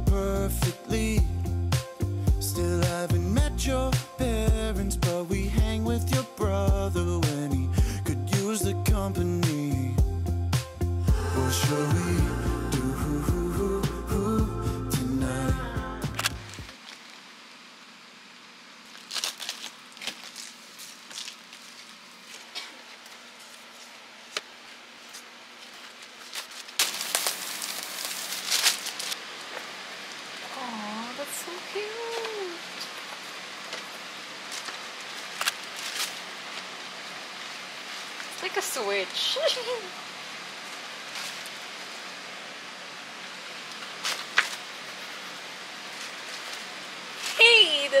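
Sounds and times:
steady hiss: 0:09.2 - 0:19.0, 0:19.6 - 0:48.0
packaging crinkling: 0:16.2 - 0:17.3, 0:18.8 - 0:30.5, 0:32.1 - 0:38.4, 0:43.7 - 0:47.4
desk mat rustle: 0:18.9 - 0:29.7.

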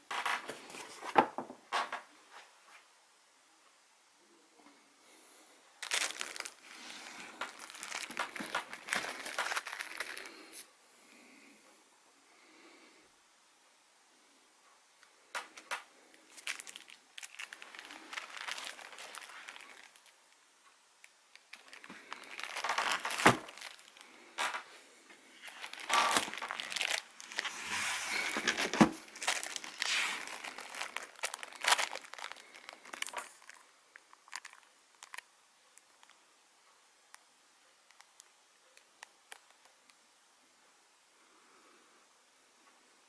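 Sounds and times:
cardboard box crinkling and rustling: 0:05.8 - 0:10.2, 0:16.4 - 0:20.1, 0:21.5 - 0:24.0, 0:25.4 - 0:33.6.

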